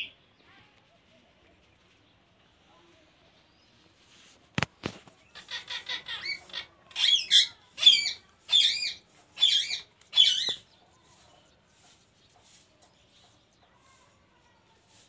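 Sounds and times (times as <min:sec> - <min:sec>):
parakeet chattering and screeching: 0:05.2 - 0:10.7.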